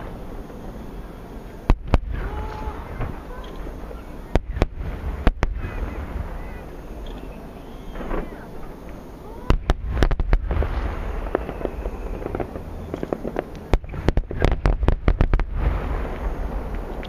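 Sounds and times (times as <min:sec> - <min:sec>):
low rumble: 0:00.0 - 0:17.0
distant firework shells booming: 0:01.6 - 0:17.0.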